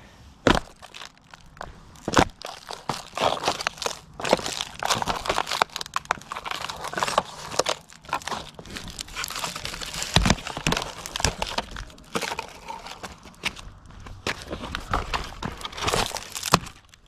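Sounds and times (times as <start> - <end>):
foam crunching and snapping: 0.4 - 17.0.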